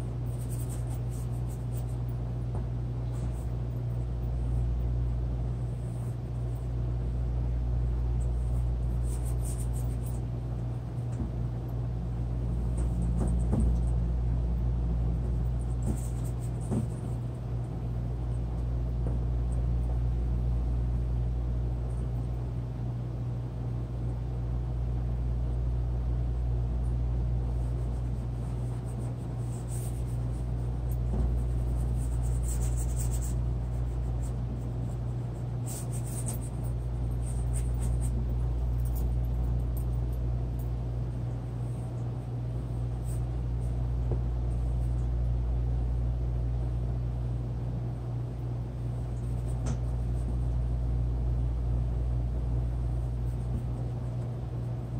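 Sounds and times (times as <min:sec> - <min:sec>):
faint scratching strokes: 0:00.0 - 0:02.3, 0:08.2 - 0:11.1, 0:27.5 - 0:39.2
steady low hum: 0:00.0 - 0:54.9.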